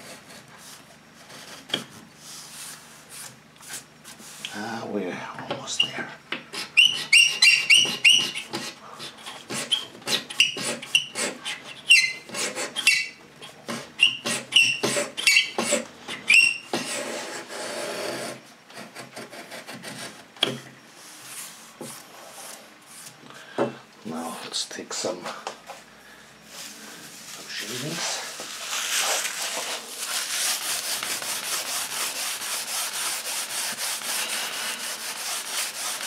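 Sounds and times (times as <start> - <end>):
steel blade scraping wood: 6.5 - 20.5, 27.4 - 36.0.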